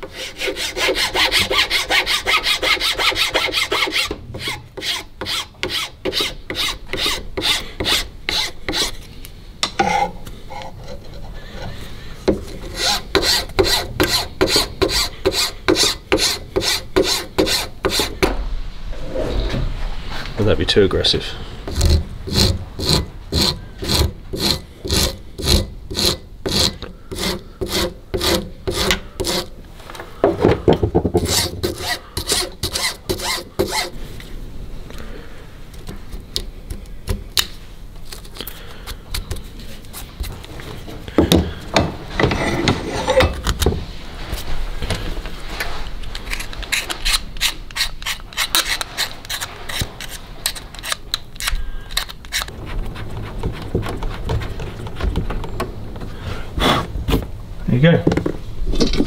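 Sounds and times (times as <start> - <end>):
hand file scraping metal: 0.0 - 9.1, 12.4 - 18.2, 21.6 - 29.6, 31.2 - 34.0, 46.2 - 55.0.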